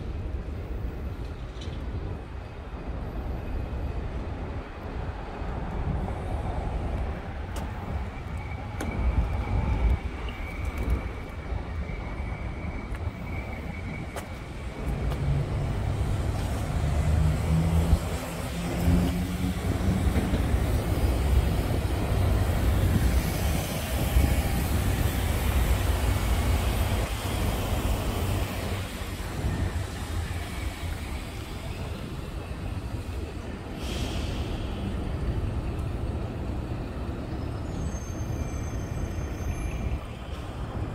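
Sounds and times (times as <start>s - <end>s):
passing vehicles rumbling: 12.7s - 37.6s
short hiss: 33.8s - 34.8s.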